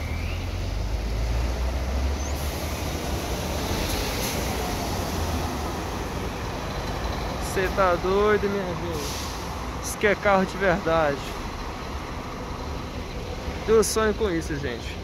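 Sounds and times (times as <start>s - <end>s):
coach engine rumble: 0.0s - 15.0s
tyre hiss on wet road: 2.4s - 5.9s, 8.9s - 9.7s.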